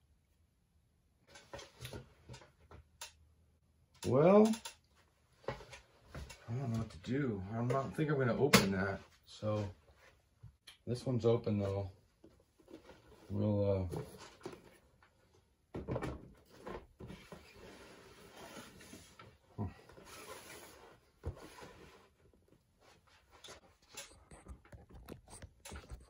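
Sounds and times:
cardboard boxes rustling and scraping: 16.3 - 23.9.

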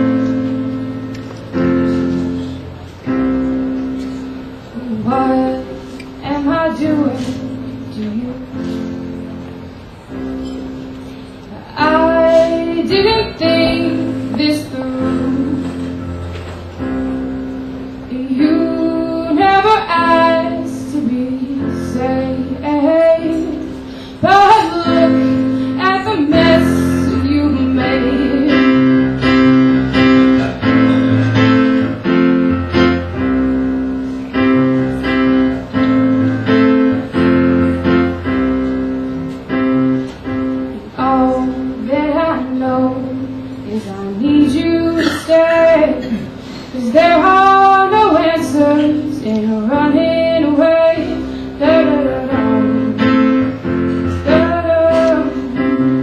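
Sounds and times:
instrumental accompaniment chords: 0.0 - 56.0
woman singing: 4.8 - 8.9, 11.6 - 16.0, 18.1 - 29.1, 40.8 - 56.0.

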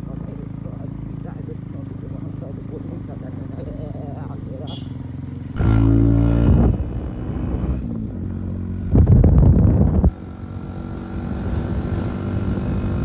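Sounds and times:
motorcycle engine running: 0.0 - 13.0
loud microphone noise bursts: 5.6 - 7.8.

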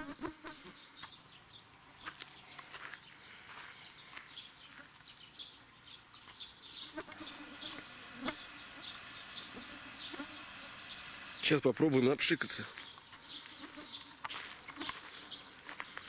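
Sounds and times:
high animal chirps: 6.8 - 11.5.

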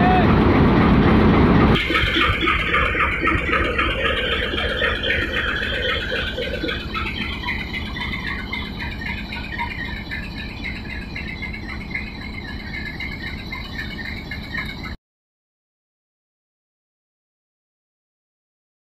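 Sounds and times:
locomotive idling: 0.0 - 15.0.

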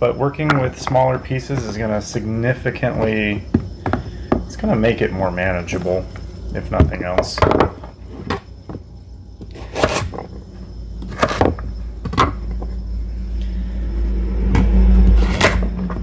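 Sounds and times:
low rumble: 11.8 - 16.0.

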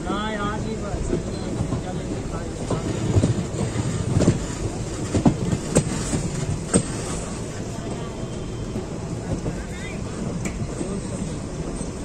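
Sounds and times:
train wheels rumbling on track: 0.0 - 12.0
wheels clanking over rail joints: 0.8 - 8.0.

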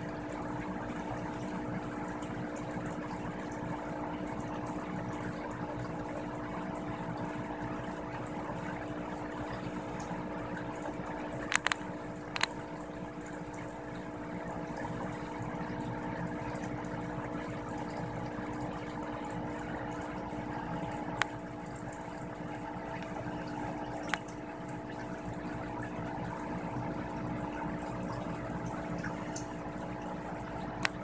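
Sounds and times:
hum of held tones: 0.0 - 31.0
sharp clicks: 11.5 - 12.6.

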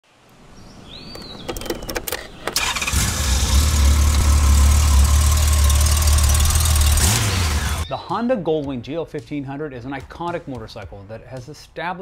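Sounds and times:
starter clicks: 1.1 - 3.0
motorcycle engine idling: 2.6 - 7.8.

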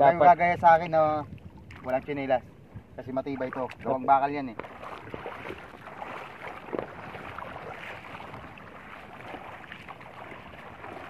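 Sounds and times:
small water splashes: 1.2 - 2.3, 3.2 - 11.0
feet wading through water: 1.3 - 2.3, 3.1 - 11.0.

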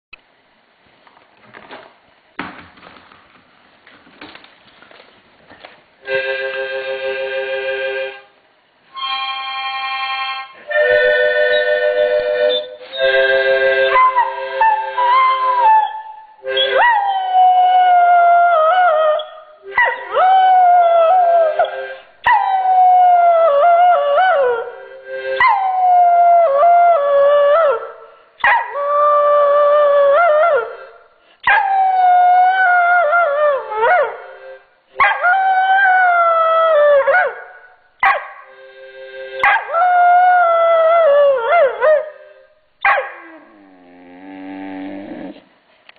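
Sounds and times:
puppy howling: 13.8 - 21.7, 31.5 - 34.2, 35.0 - 37.5, 39.4 - 42.2, 42.9 - 45.4
dog whining: 13.8 - 22.5, 42.8 - 45.5.

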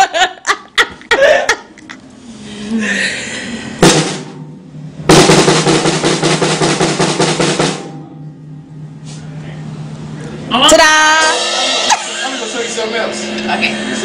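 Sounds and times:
snare drum roll: 3.8 - 4.5, 5.1 - 7.9
drum kit hits: 3.8 - 8.2, 11.0 - 14.0.

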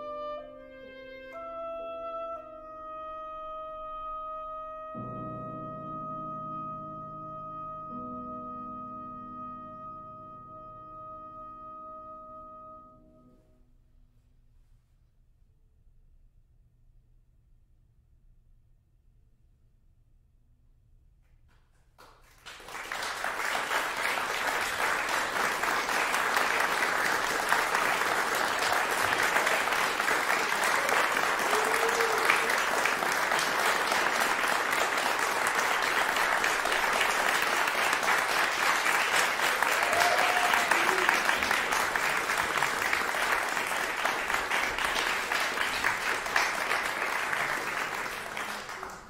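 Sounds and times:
audience applauding: 22.0 - 49.0.

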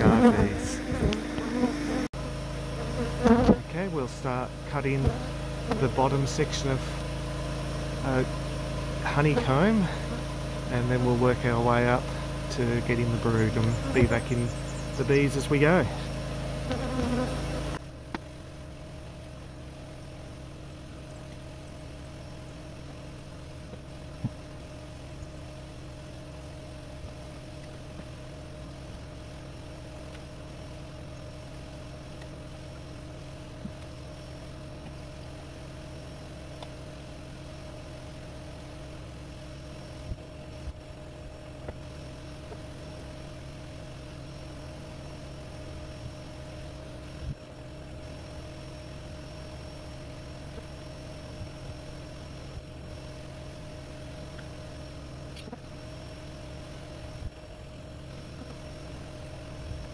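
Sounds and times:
honeybees buzzing: 0.0 - 17.8.

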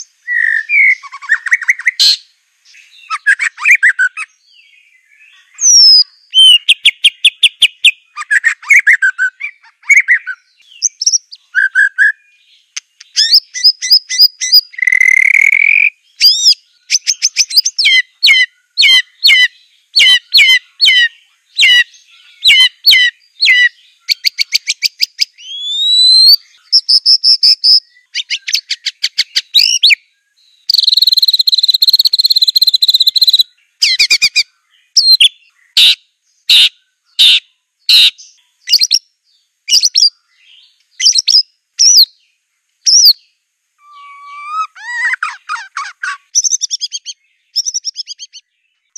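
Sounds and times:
songbird singing varied song: 0.0 - 48.9
buzzy bird chattering: 12.8 - 25.0, 43.8 - 48.4.

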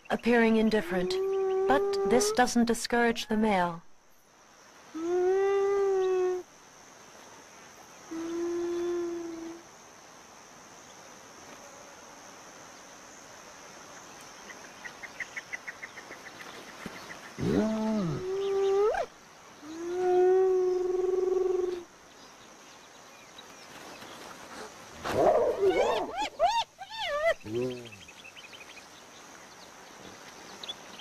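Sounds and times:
hyena calls: 17.4 - 21.9, 25.1 - 28.1.

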